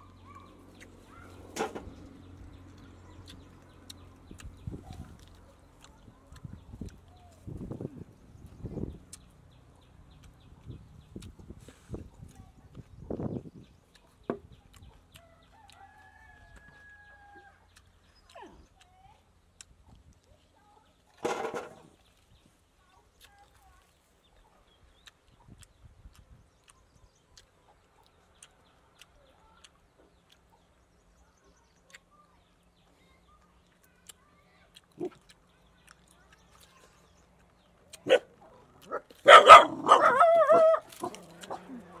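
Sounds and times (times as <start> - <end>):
rooster crowing faintly: 15.1 - 17.7
dog barking: 38.0 - 41.9
dog wavering cry: 39.3 - 40.9.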